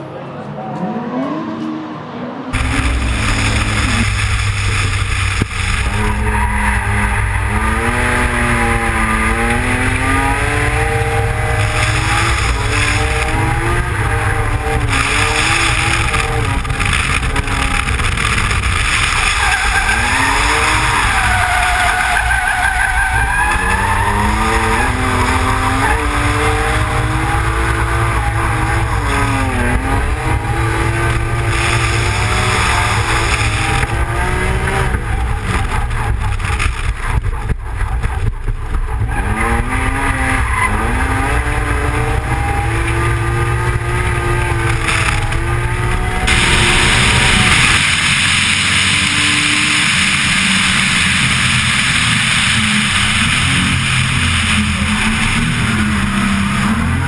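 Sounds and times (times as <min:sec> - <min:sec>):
car engine revving: 0:01.2 - 0:57.0
tyres squealing: 0:05.8 - 0:27.4.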